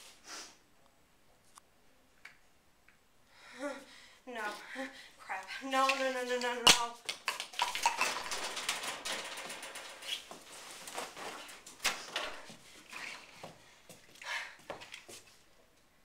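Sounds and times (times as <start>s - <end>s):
footsteps: 5.8s - 15.4s
rummaging in metal cupboard: 7.8s - 12.5s.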